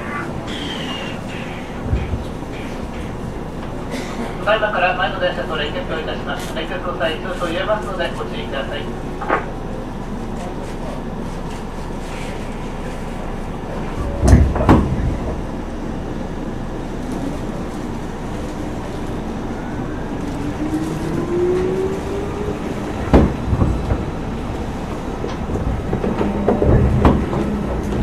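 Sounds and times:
train wheels rumbling on rail: 0.0 - 28.0
wheels thumping over rail joints: 22.7 - 28.0.

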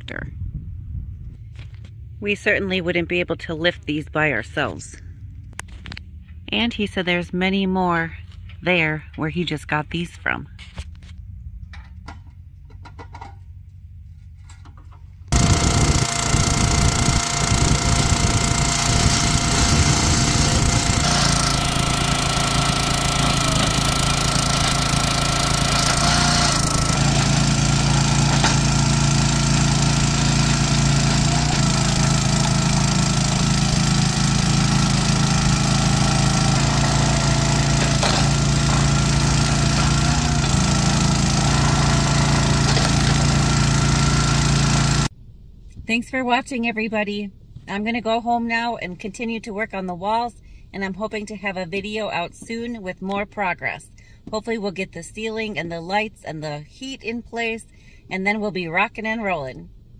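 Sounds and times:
small engine running: 15.3 - 45.1.

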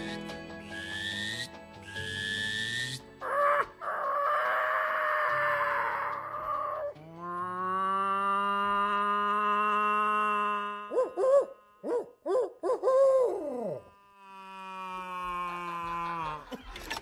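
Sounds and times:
soft background music: 0.0 - 8.4
person imitating hooting call: 0.6 - 16.4
person imitating crow caw: 1.0 - 16.4.

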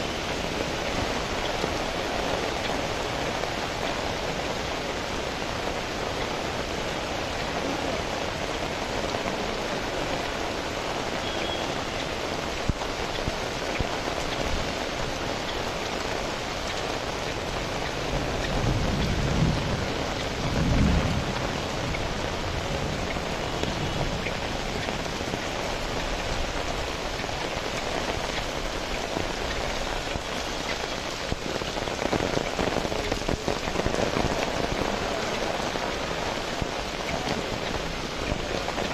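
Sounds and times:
rain falling on street: 0.0 - 38.9
thunder rumbling: 17.4 - 26.9, 27.6 - 38.9.

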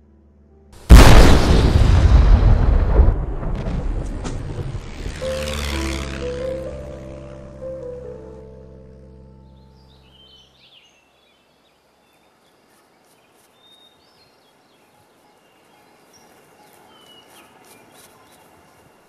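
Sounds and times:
music: 0.0 - 0.8, 5.2 - 10.2
birds chirping: 5.1 - 19.0
brush scratching dry soil: 16.6 - 18.8.

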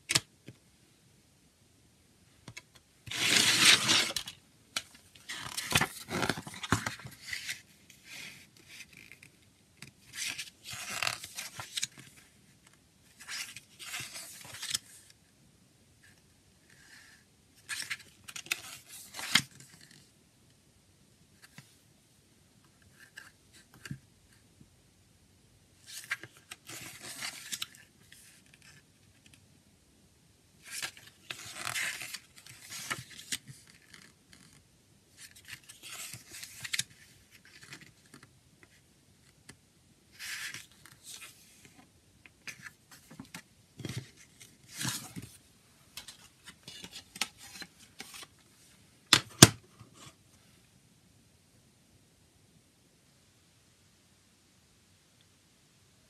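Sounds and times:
paper pages rustling: 3.1 - 12.2, 30.7 - 34.5, 35.2 - 38.8, 42.4 - 48.4.

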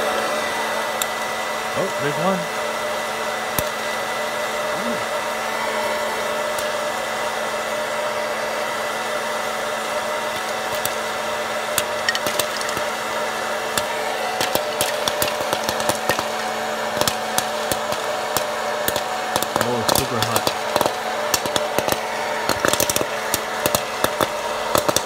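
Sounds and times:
popcorn popper fan humming: 0.0 - 25.0
corn kernels popping: 3.5 - 3.8, 6.3 - 6.8, 10.1 - 25.0.

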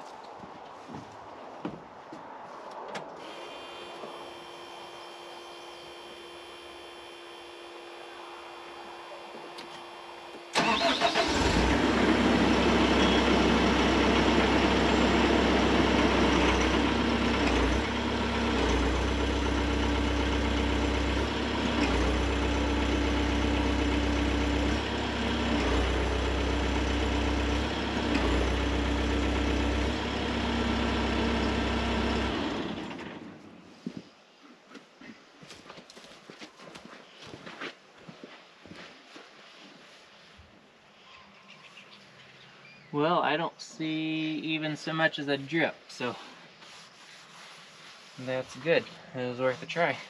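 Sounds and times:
diesel engine cranking and running: 8.4 - 33.6.

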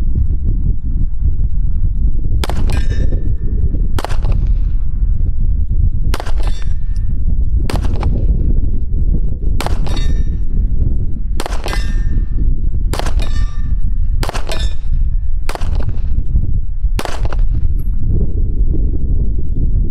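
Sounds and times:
bullets clanging on steel plate: 6.2 - 6.8, 9.7 - 10.3, 11.6 - 12.2, 13.1 - 15.0.

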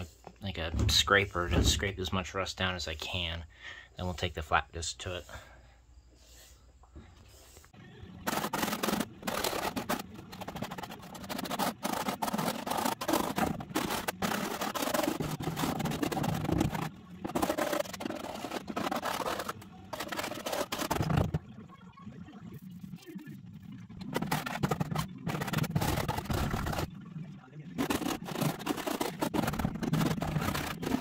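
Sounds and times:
paint scraper scraping rust off metal: 8.2 - 21.4, 24.2 - 26.9, 27.8 - 31.0.

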